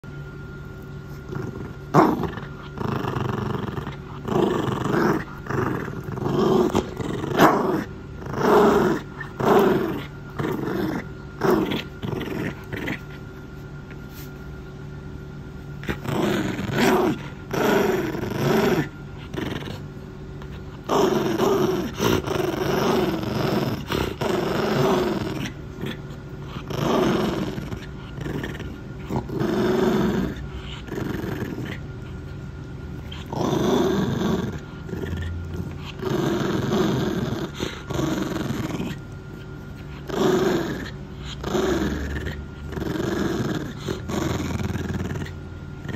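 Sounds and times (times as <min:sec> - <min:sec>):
puppy growling: 0:00.9 - 0:14.6, 0:15.5 - 0:45.9.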